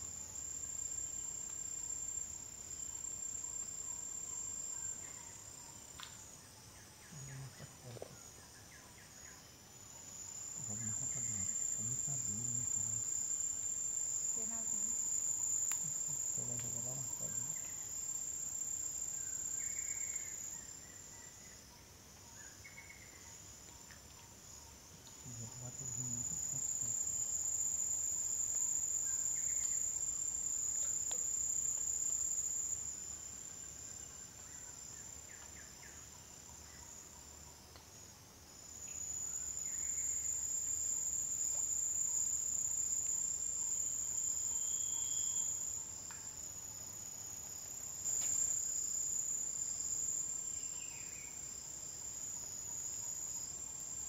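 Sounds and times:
high-pitched insect drone: 10.1 - 21.6, 25.2 - 37.4, 38.8 - 46.2.

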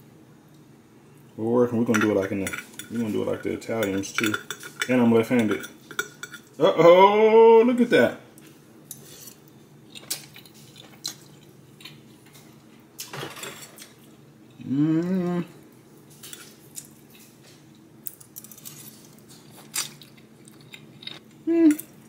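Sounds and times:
person humming: 14.6 - 15.6, 21.4 - 21.9.

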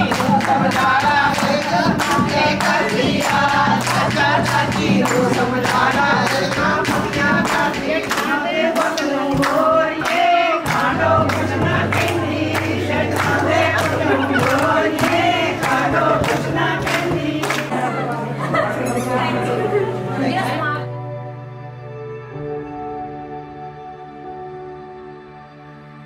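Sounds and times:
sharp rhythmic strikes: 0.0 - 18.0
group of voices singing: 0.0 - 20.8.

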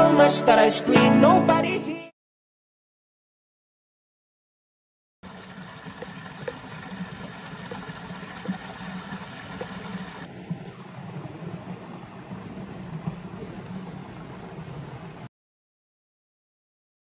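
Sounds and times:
rushing flowing water: 5.3 - 15.3.

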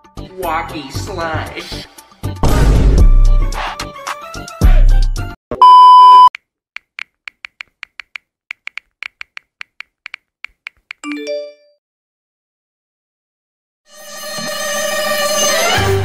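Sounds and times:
deep boom: 2.4 - 3.2
censor bleep: 5.6 - 6.3
smartphone keyboard taps: 6.8 - 11.1.

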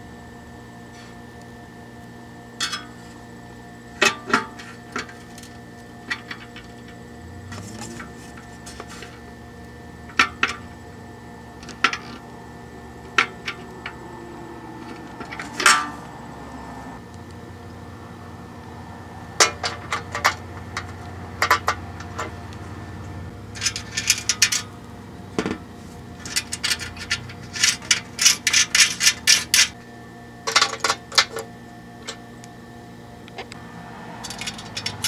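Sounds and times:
faint hum: 0.0 - 21.6.

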